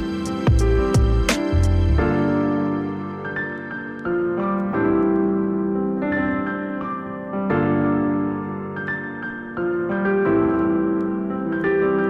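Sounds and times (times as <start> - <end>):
keyboard music with sustained chords: 0.0 - 12.0.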